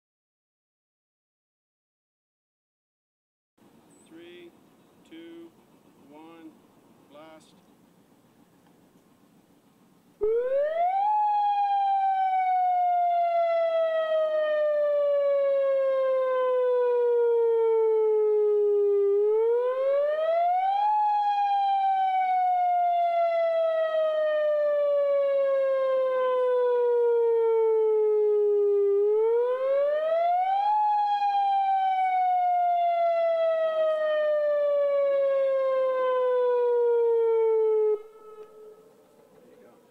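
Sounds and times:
emergency warning siren: 10.2 - 39.9.

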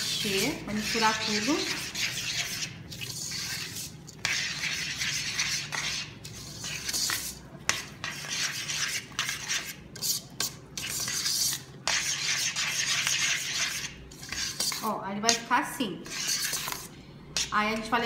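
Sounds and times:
utensil scraping metal pot: 0.0 - 18.0.

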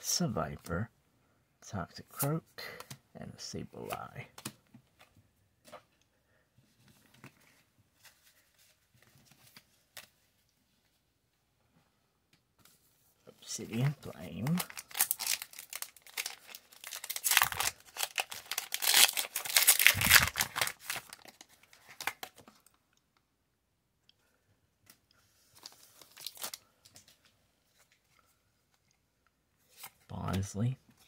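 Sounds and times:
foil wrapper tearing and crinkling: 14.4 - 22.3, 26.0 - 26.6.

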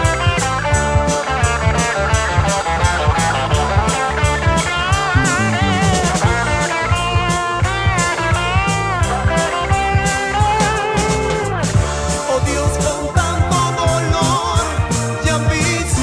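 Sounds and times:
lead guitar with bending notes: 0.0 - 12.2
drum kit beat: 0.0 - 16.0
electric guitar: 0.0 - 16.0.

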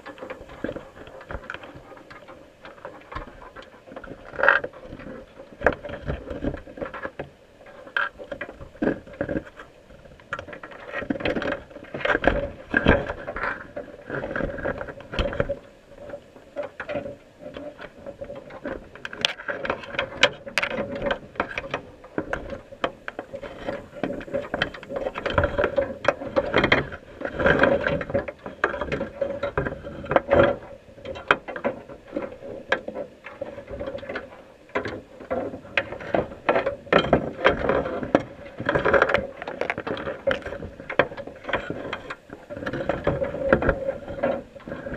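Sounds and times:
crabs clicking underwater: 0.0 - 44.9.

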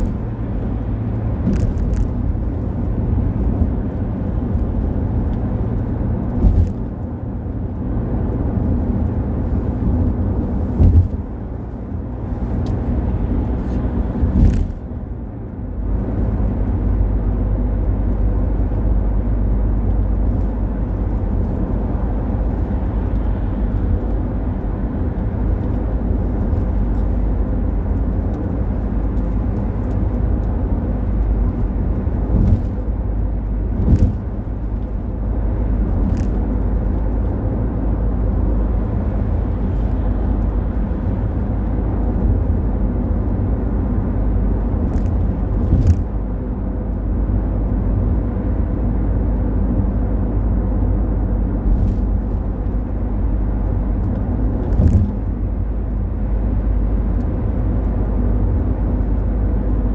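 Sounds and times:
car road and engine rumble: 0.0 - 59.9
brief thumps and clicks: 33.8 - 35.0, 54.1 - 55.3.

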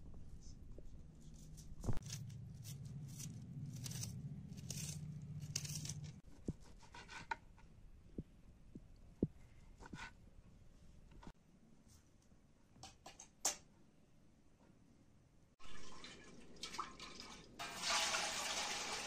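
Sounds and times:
knife slicing onion: 1.3 - 7.3.

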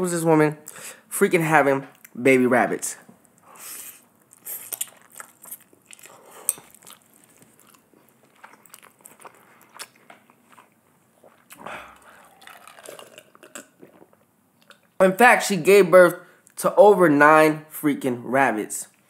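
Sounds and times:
noodles slurping: 3.4 - 14.2
chewing with wet mouth smacks: 4.2 - 14.9
drinking iced water: 11.2 - 14.8.

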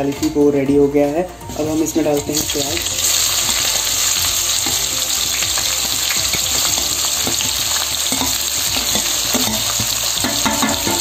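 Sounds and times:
onions sizzling in hot oil: 1.5 - 11.0.

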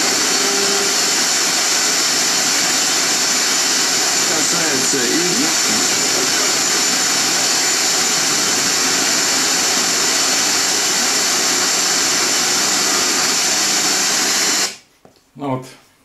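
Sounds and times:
radio static hiss: 4.0 - 7.5.

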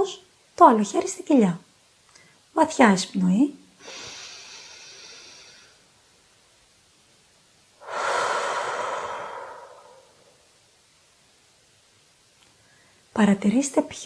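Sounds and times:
woman exhaling: 3.8 - 5.8, 7.8 - 10.4
woman inhaling: 3.8 - 5.9, 7.8 - 10.5, 12.6 - 13.1.

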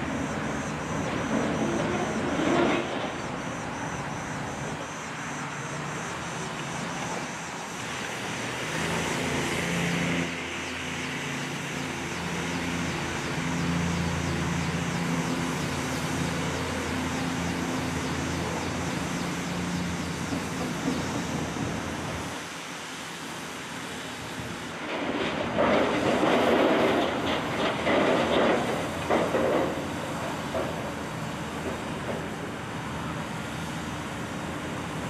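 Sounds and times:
engine running: 0.0 - 22.4
constant hiss: 0.0 - 35.0.

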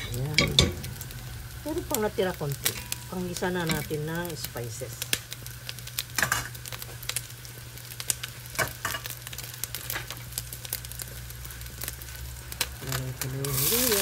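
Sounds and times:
chicken skin frying: 0.0 - 14.0.

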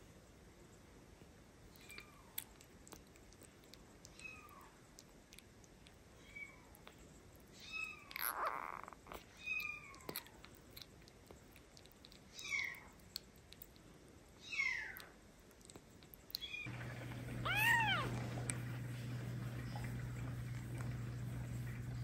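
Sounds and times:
kitten mewing: 7.7 - 10.4, 17.4 - 18.2.

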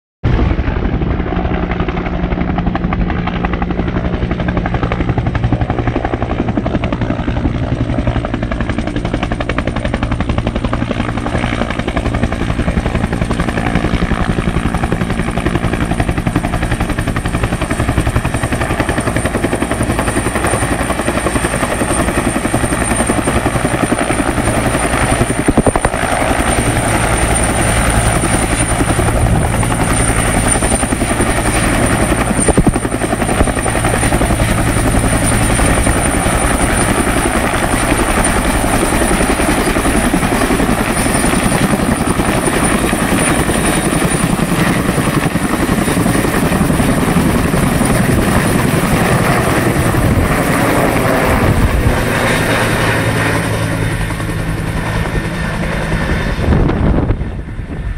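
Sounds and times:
helicopter rotor beating: 0.3 - 57.9
high turbine whine: 13.2 - 57.9.

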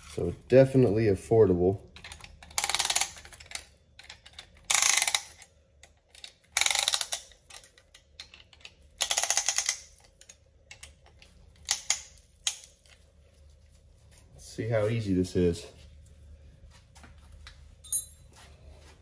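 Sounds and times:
rapid ratchet clicking: 2.0 - 5.5, 6.1 - 10.9.

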